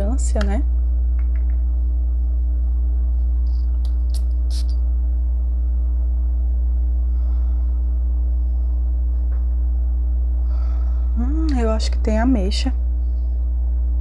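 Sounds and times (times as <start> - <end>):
steady low hum: 0.0 - 14.0
spray bottle hissing: 3.5 - 4.8.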